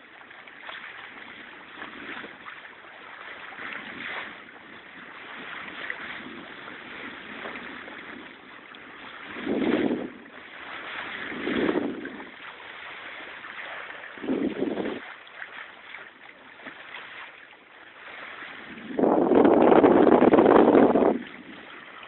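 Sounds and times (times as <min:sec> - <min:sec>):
water washing around boat: 0:00.0 - 0:22.0
wind on microphone: 0:03.4 - 0:15.2, 0:18.0 - 0:22.0.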